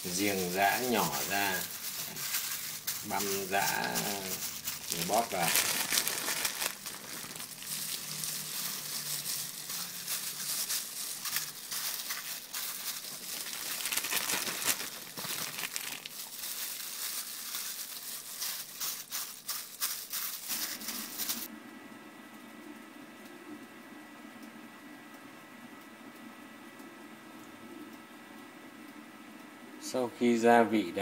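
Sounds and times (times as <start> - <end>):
gas burner flame hissing: 0.0 - 5.9, 6.8 - 10.6
hands squishing marinade into fish: 0.1 - 21.4.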